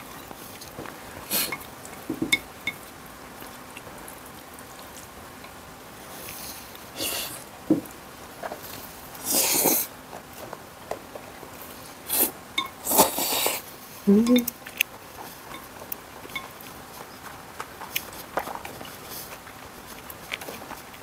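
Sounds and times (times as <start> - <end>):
noodles slurped: 8.7 - 9.9, 12.0 - 13.7.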